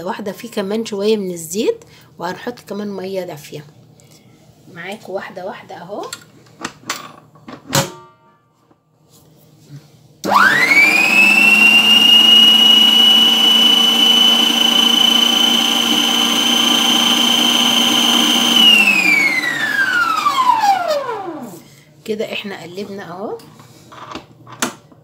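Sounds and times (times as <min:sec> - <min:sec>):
beater stirring flour: 0:10.3 - 0:21.6
stand mixer motor whine: 0:10.3 - 0:21.6.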